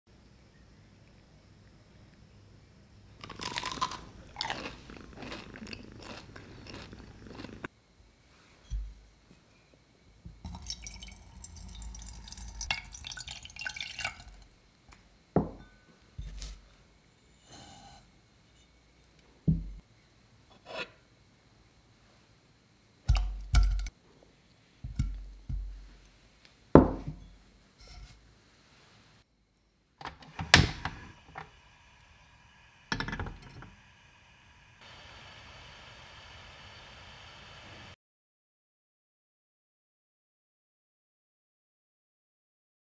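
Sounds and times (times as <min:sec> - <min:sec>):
crunchy biting and chewing: 0:03.2 - 0:07.7
kitchenware knocks and clunks: 0:15.4 - 0:15.7, 0:26.8 - 0:27.2.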